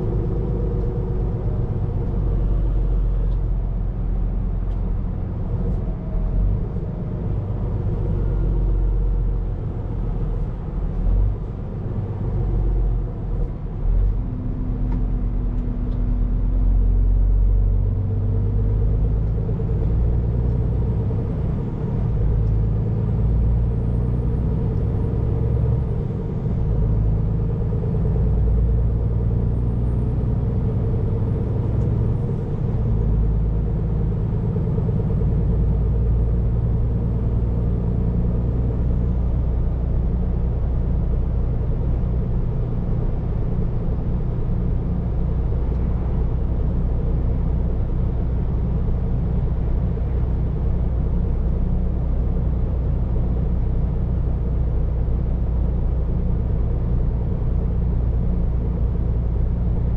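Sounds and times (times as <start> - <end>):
road noise: 0.0 - 59.9
truck diesel engine rumble: 0.0 - 59.9.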